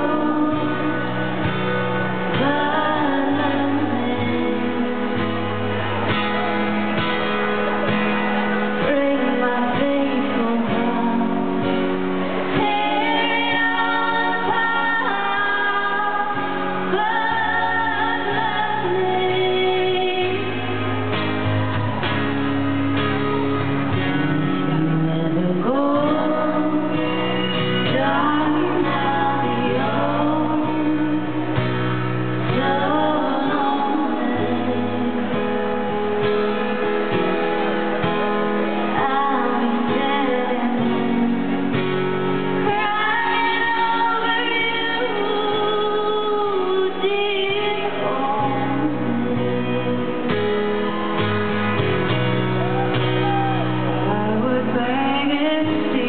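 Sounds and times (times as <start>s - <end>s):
women singing: 0.0s - 5.4s, 8.8s - 20.8s, 24.7s - 35.7s, 38.8s - 50.6s, 54.0s - 56.0s
acoustic guitar: 0.0s - 56.0s.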